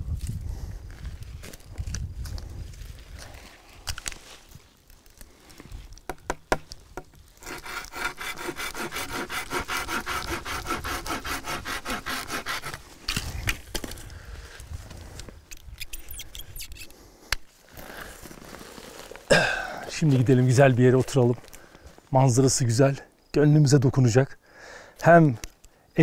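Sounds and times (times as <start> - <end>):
hand saw cutting branch: 7.4 - 12.9
rustling: 17.5 - 19.3.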